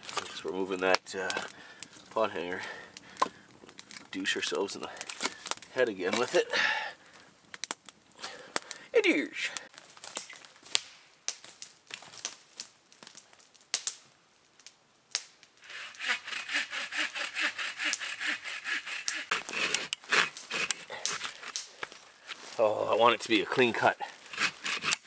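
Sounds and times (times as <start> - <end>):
hand saw cutting wood: 6.0 - 6.5, 15.6 - 21.7, 23.5 - 25.0
footsteps in dry leaves: 21.2 - 22.9.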